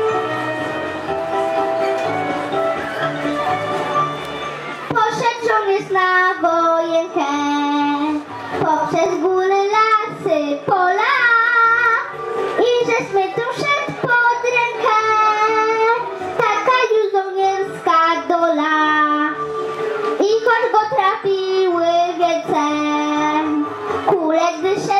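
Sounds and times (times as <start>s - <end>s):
backing music: 0.0s - 24.9s
girl singing into microphone: 4.9s - 19.4s, 20.2s - 24.9s.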